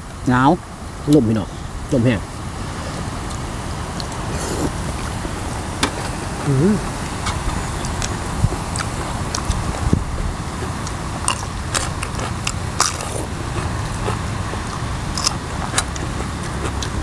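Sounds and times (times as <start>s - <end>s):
mouth noises: 6.4s - 9.7s
chewing and crunching: 7.2s - 17.0s.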